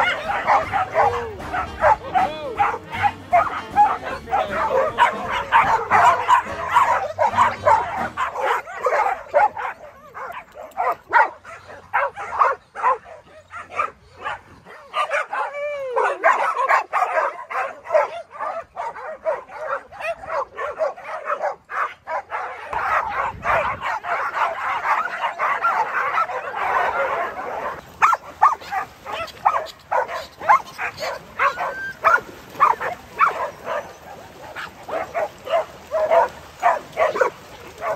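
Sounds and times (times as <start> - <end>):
dogs barking and yipping: 0.0 - 37.9.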